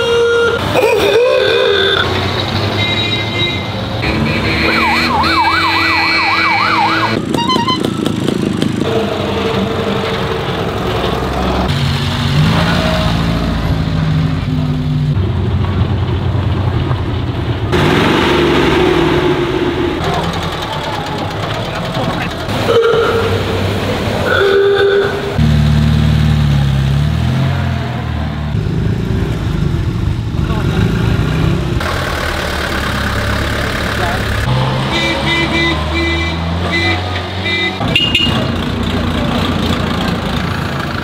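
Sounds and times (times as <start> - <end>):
vintage vehicles driving past: 0.0 - 41.0
wailing siren: 4.5 - 7.9.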